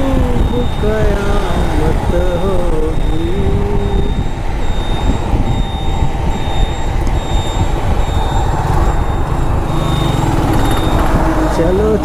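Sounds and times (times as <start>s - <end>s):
faint high beep: 0.0s - 12.0s
low rumble of street traffic: 0.0s - 12.0s.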